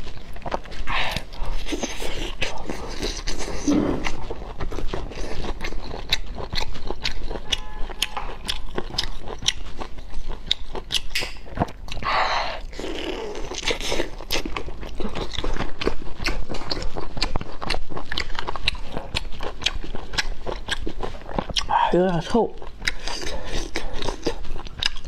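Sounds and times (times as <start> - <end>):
wet clicks and smacks of chewing: 4.0 - 12.1, 13.4 - 25.0.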